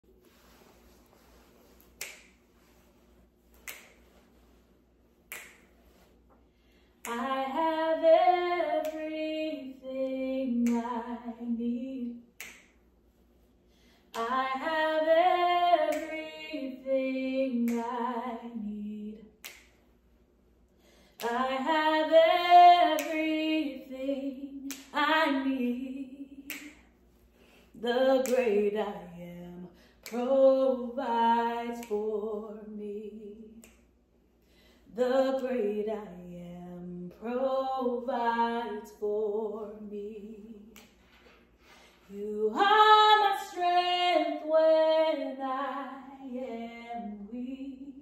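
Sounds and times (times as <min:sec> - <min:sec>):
finger snaps: 0:01.6 - 0:02.6, 0:03.5 - 0:04.3, 0:05.2 - 0:11.4, 0:12.1 - 0:12.9, 0:14.0 - 0:20.0, 0:20.7 - 0:27.0, 0:27.6 - 0:29.1, 0:29.7 - 0:35.6, 0:40.2 - 0:42.7
woman singing gospel unaccompanied: 0:07.0 - 0:12.3, 0:14.2 - 0:19.4, 0:21.2 - 0:26.8, 0:27.7 - 0:33.7, 0:34.9 - 0:41.0, 0:42.1 - 0:48.0.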